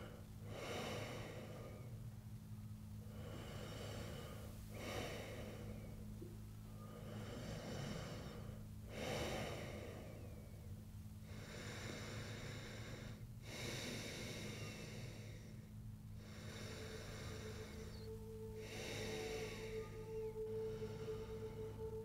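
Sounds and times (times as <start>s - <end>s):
person breathing heavily: 0.0s - 2.0s, 3.0s - 22.0s
steady low hum: 0.0s - 22.0s.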